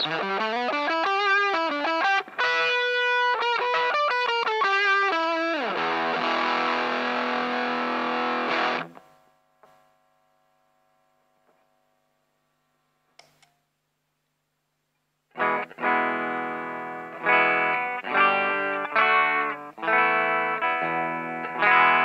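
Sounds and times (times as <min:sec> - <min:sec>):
distorted electric guitar: 0:00.0 - 0:09.8, 0:15.3 - 0:22.0
faint amp hum: 0:00.0 - 0:22.0.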